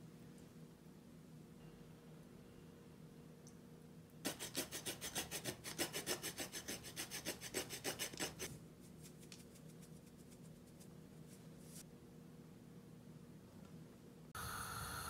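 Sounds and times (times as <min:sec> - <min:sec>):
cheese rasping on grater: 0:04.3 - 0:08.5.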